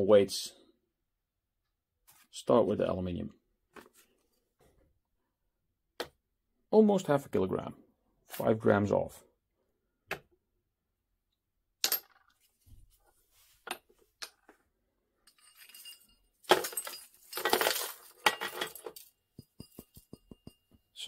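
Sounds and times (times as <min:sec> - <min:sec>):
metal ingots clinking: 0:15.3 - 0:20.7.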